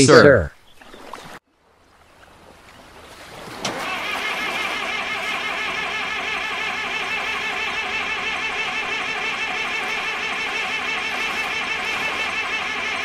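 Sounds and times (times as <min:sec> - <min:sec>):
excavator engine running: 0:03.7 - 0:13.0.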